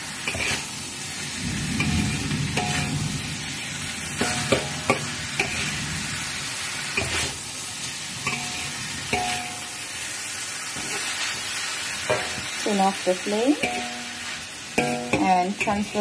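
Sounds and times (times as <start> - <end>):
food sizzling in a wok: 0.0 - 16.0
spatula scraping and knocking wok: 0.0 - 16.0.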